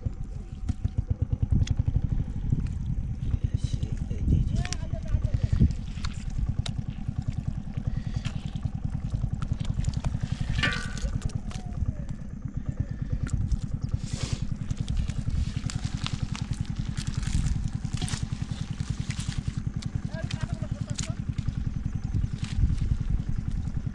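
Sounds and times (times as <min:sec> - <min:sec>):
small engine chugging: 0:00.0 - 0:23.9
splashing: 0:13.4 - 0:23.7.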